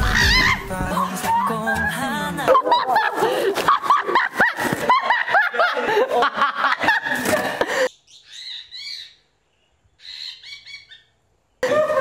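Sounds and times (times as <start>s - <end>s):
high chirping squeals: 7.9s - 9.3s, 10.0s - 12.0s
high-pitched shrieking laughter: 11.6s - 12.0s.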